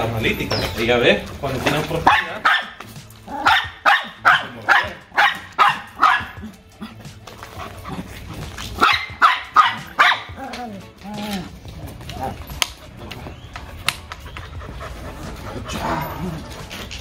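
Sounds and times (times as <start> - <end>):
dog barking: 2.0 - 6.6, 8.8 - 10.6.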